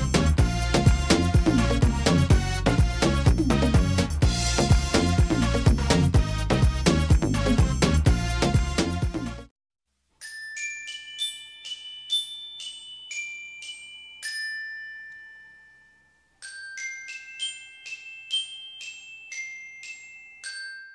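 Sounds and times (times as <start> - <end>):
dense background music: 0.0 - 9.5
bell-like mallet tune: 10.2 - 20.9.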